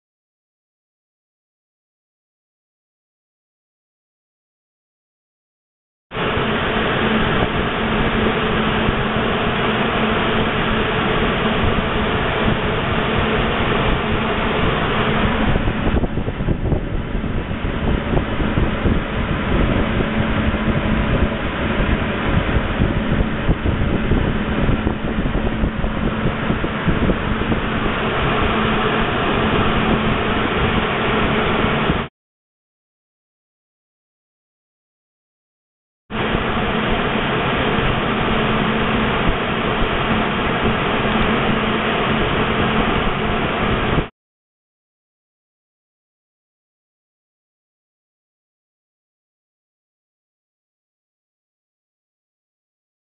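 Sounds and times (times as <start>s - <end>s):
steady rushing noise: 6.1s - 32.1s, 36.1s - 44.1s
low even hum: 6.2s - 32.1s.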